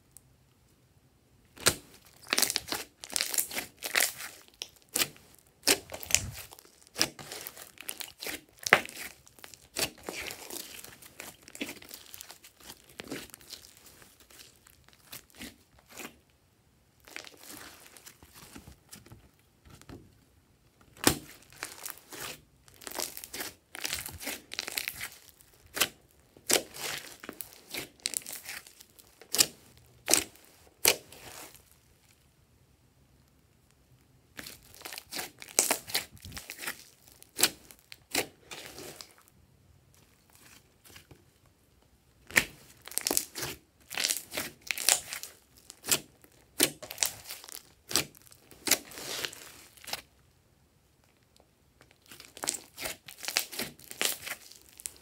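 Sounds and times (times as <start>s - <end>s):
slime sticky crackling: 1.6s - 16.2s, 21.0s - 31.8s, 34.3s - 39.3s, 42.2s - 50.0s, 52.1s - 55.0s.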